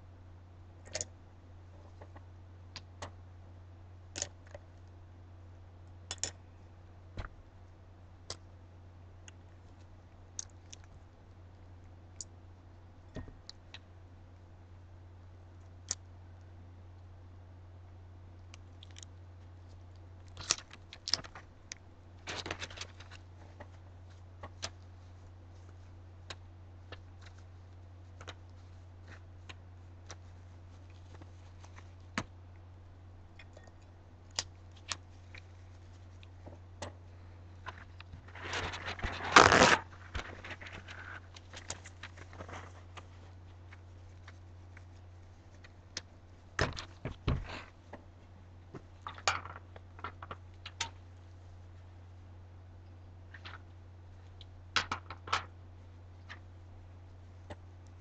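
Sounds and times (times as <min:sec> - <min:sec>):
steady low hum: 0:00.0 - 0:58.0
rustling scrape: 0:37.6 - 0:45.6.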